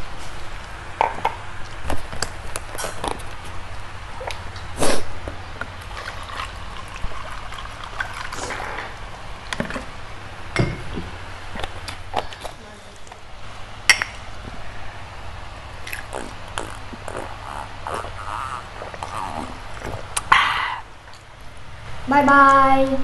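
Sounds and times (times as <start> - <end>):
slurping noodles: 15.9 - 20.4.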